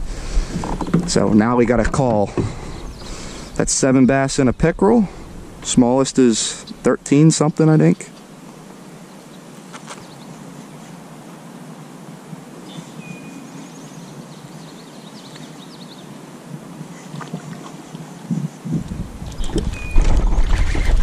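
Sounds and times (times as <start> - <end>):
faint bird chirps: 12.6 - 16.1, 19.3 - 20.2.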